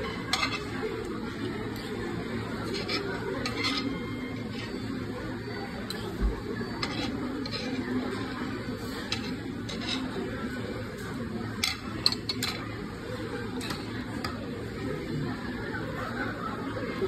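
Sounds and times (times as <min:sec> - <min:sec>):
restaurant dining room hum: 0:00.0 - 0:17.0
chopsticks clinking on bowl: 0:02.8 - 0:04.7.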